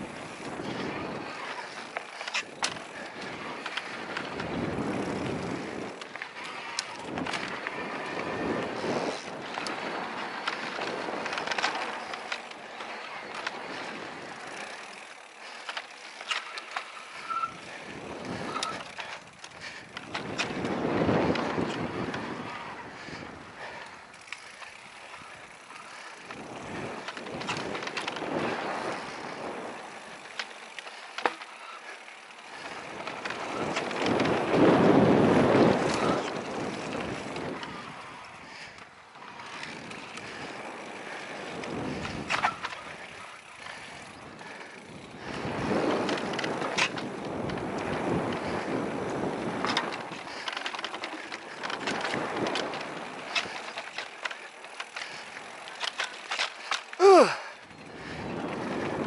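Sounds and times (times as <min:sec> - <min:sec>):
wind rushing over microphone: 0:00.0 - 0:14.6, 0:17.3 - 0:24.0, 0:32.5 - 0:38.5, 0:39.3 - 0:43.2, 0:43.8 - 0:53.8, 0:57.2 - 0:59.0
bike clicks and rattles: 0:00.0 - 0:59.0
bike tyres on packed dirt: 0:00.0 - 0:59.0.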